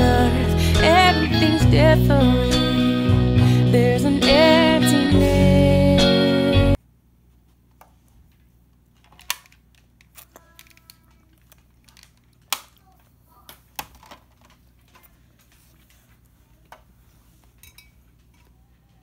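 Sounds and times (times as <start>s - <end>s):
music: 0.0s - 6.8s.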